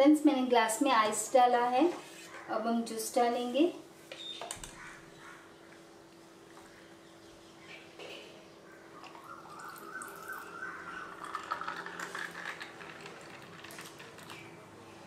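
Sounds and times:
juice pouring into glass: 0:09.0 - 0:14.5
ice clinking in glass: 0:11.1 - 0:14.3.

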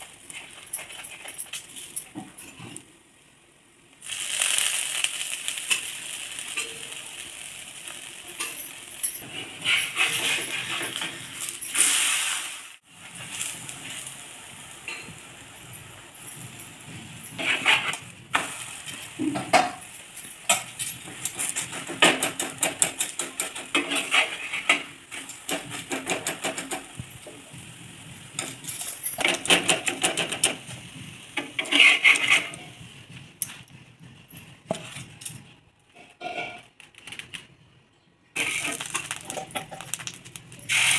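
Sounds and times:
oil sizzling: 0:03.1 - 0:33.1, 0:38.4 - 0:40.9
metal utensil scraping a griddle: 0:08.4 - 0:11.5, 0:17.3 - 0:19.6, 0:20.5 - 0:26.8, 0:31.4 - 0:32.8, 0:36.0 - 0:36.7, 0:38.4 - 0:39.9.

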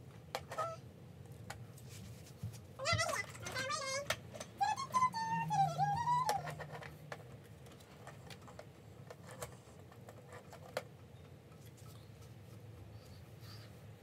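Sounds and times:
plastic toys clicking and tapping: 0:00.1 - 0:00.8, 0:02.9 - 0:11.9
toy squeaky electronic voice: 0:00.5 - 0:00.8, 0:02.8 - 0:06.6.

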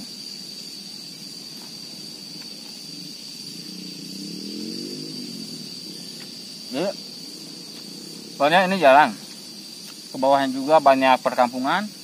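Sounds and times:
insect trill: 0:00.0 - 0:12.0
passing vehicle engine drone: 0:03.0 - 0:09.2.

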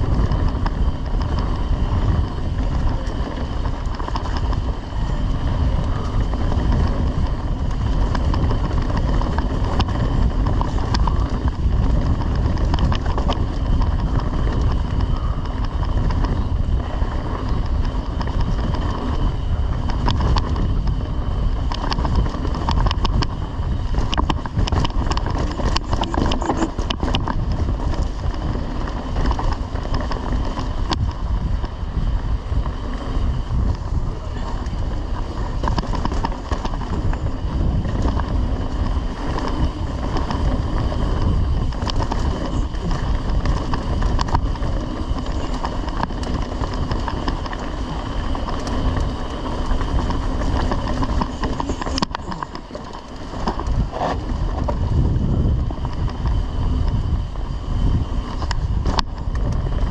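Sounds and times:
bike clicks and rattles: 0:00.0 - 0:59.9
tyres rolling on dirt: 0:00.0 - 0:59.9
wind on microphone: 0:00.0 - 0:59.9.

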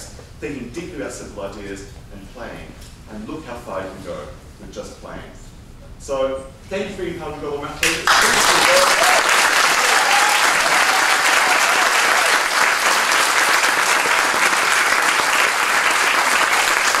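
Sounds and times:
audience applauding: 0:07.8 - 0:17.0.

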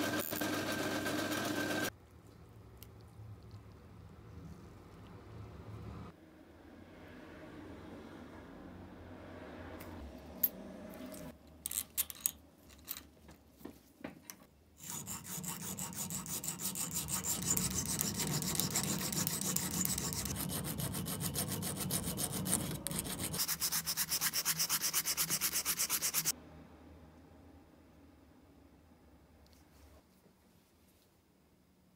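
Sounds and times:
file scraping metal: 0:14.8 - 0:26.3
sanding with abrasive cloth: 0:14.8 - 0:26.3.

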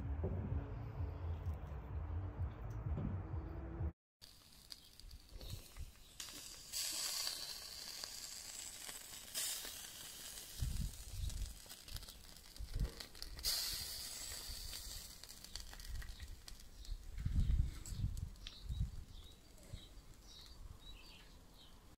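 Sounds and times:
low thumps: 0:00.0 - 0:03.9
food sizzling on grill: 0:04.2 - 0:21.2.

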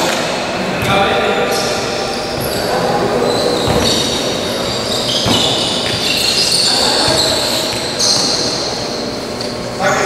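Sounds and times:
sneakers squeaking on floor: 0:00.8 - 0:09.7
ball kicked and thudding: 0:05.2 - 0:06.0.

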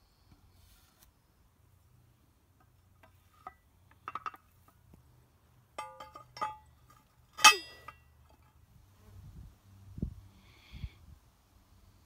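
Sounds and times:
steel plate clanging: 0:05.8 - 0:08.5
steel plate clinking on hanger: 0:05.8 - 0:08.5.

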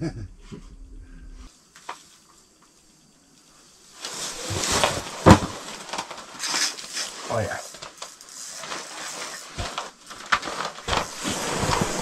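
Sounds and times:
low hum: 0:00.0 - 0:01.5
rustling and handling noise: 0:03.4 - 0:12.0.

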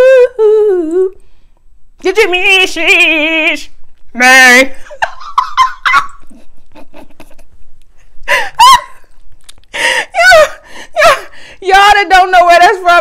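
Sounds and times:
woman laughing: 0:04.7 - 0:07.6, 0:08.3 - 0:09.1, 0:10.1 - 0:11.3.

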